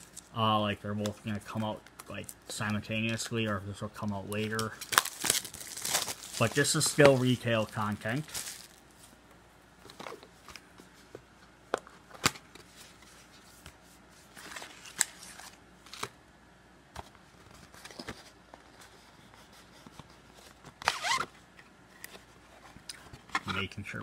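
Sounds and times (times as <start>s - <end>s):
crinkling rustle: 1.0s - 9.2s.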